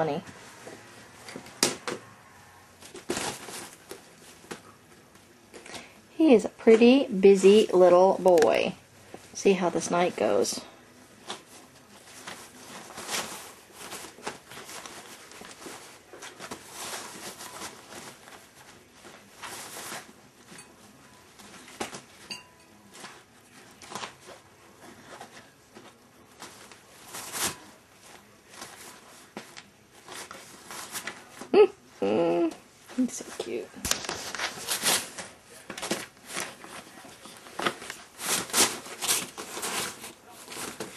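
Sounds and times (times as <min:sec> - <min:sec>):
scratches and rustles: 0:02.5 - 0:05.7, 0:11.1 - 0:31.5, 0:32.8 - 0:40.9.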